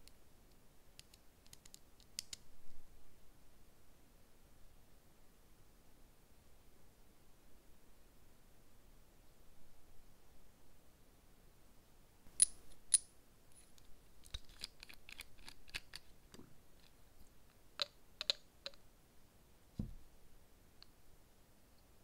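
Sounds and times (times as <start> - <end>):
nail tools clicking: 1.0 - 2.4, 14.2 - 16.1
dull thump: 19.8 - 20.1.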